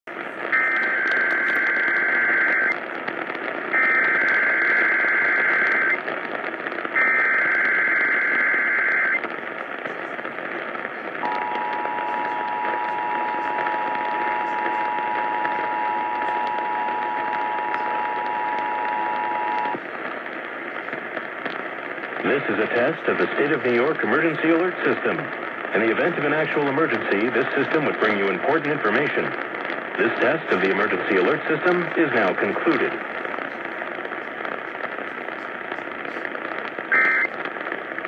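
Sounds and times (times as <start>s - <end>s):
radio static hiss: 0.1s - 38.0s
digital data bursts: 0.5s - 2.8s, 3.6s - 6.0s, 6.9s - 9.2s, 11.2s - 19.8s, 36.9s - 37.4s
two-tone attention signal: 11.2s - 19.7s, 37.0s - 37.3s.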